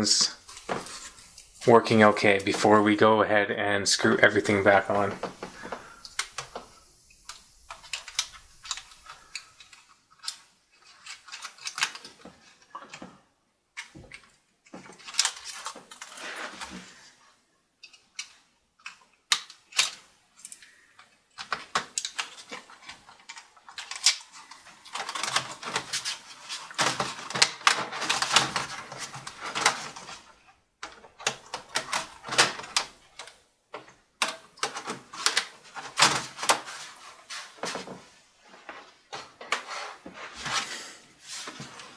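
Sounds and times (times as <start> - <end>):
keyboard plastic clicking and rattling: 7.3 - 13.1, 17.8 - 36.7.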